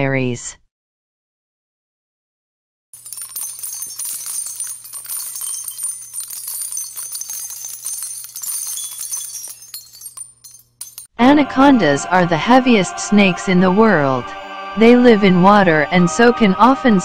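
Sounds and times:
jingling bell-like shimmer: 3.0s - 11.1s.

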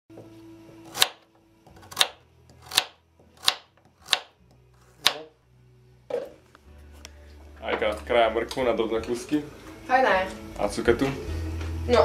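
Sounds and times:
knife slicing carrot on board: 0.8s - 5.3s.

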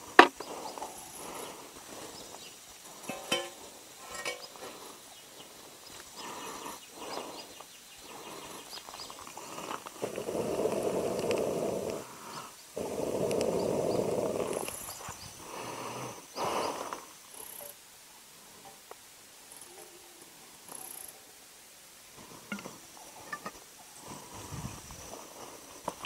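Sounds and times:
log crackling: 0.0s - 3.8s, 4.7s - 17.1s
fire burning: 2.8s - 17.4s.

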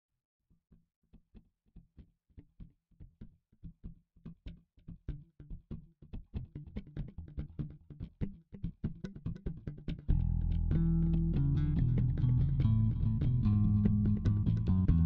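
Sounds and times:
plucked guitar notes: 6.5s - 15.0s.

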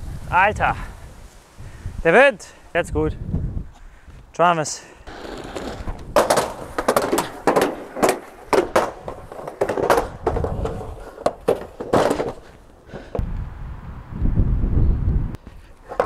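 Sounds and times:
wind on microphone: 0.0s - 2.1s, 2.7s - 4.3s, 8.9s - 11.2s, 12.9s - 15.7s
inline skates clacking on street: 5.1s - 13.2s, 15.4s - 16.0s.

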